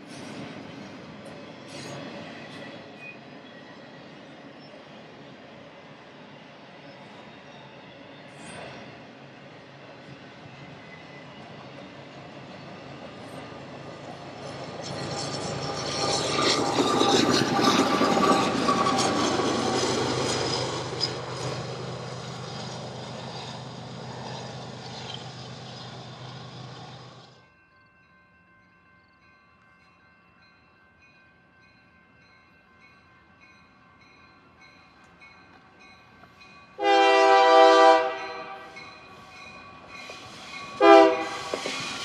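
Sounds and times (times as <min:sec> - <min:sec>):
freight train wheels rumbling: 0:00.0 - 0:27.4, 0:34.6 - 0:42.0.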